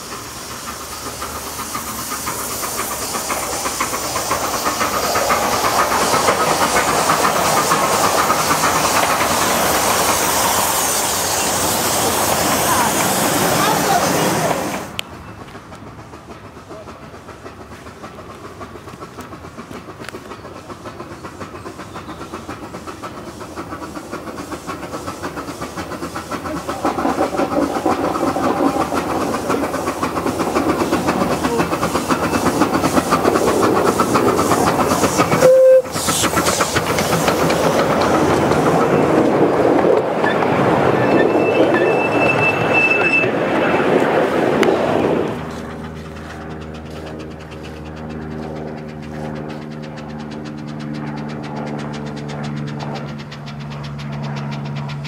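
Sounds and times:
steam locomotive chuffing: 0.0s - 55.0s
wheels clattering on rails: 0.0s - 55.0s
carriages rolling past: 36.0s - 55.0s.

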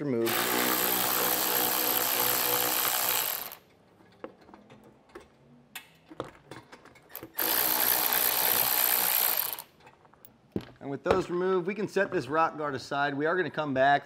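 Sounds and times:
cordless power tool spinning screws: 0.2s - 3.6s, 7.1s - 9.7s.

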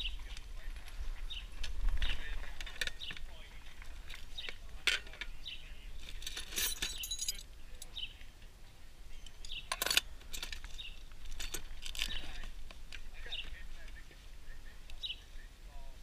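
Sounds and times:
bird chirps: 5.2s - 6.0s, 6.9s - 9.9s
metal objects clinking: 6.0s - 7.9s, 9.2s - 12.5s.

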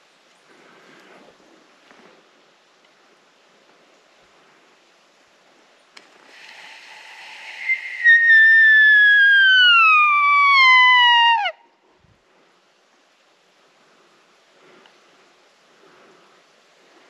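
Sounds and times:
breathy rush: 6.3s - 11.5s
deer whistling call: 6.6s - 11.5s
faint click: 14.8s - 15.0s.

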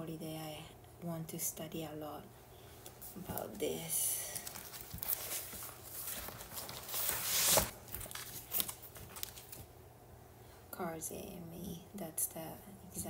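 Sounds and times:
paper and cover rustling: 4.2s - 9.7s.

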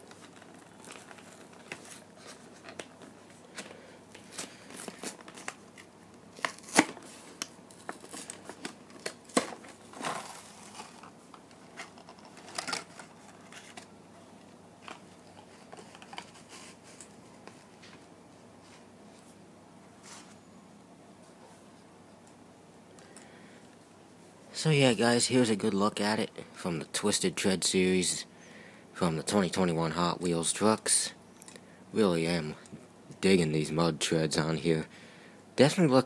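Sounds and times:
plastic crinkling and crackling: 0.0s - 13.9s
cardboard tearing: 6.4s - 7.1s, 9.4s - 11.1s.

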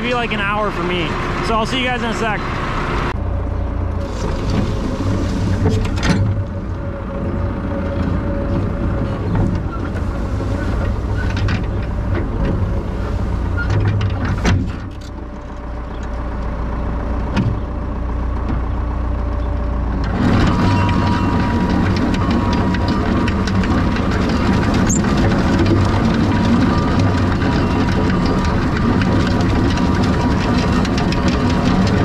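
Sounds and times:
tractor diesel engine: 0.0s - 32.0s
mower cutting tall grass: 4.0s - 15.6s, 20.0s - 32.0s.

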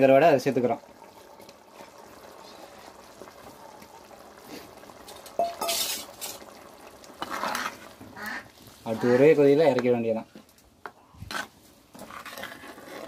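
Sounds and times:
simmering pot hissing: 0.0s - 9.7s
ladle stirring in pot: 0.6s - 9.2s, 10.3s - 13.0s
ladle clink: 5.1s - 6.4s.

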